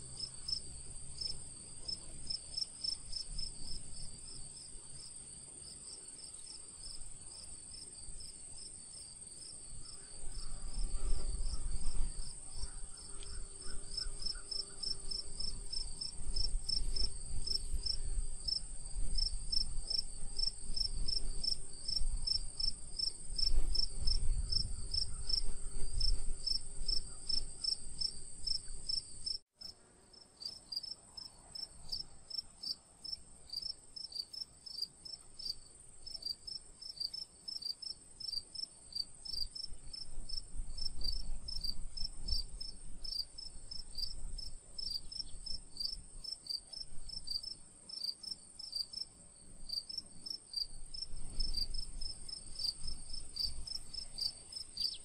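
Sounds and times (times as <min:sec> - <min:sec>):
crickets chirping: 0:00.0 - 0:29.4, 0:30.1 - 0:55.0
high insect trill: 0:31.9 - 0:55.0.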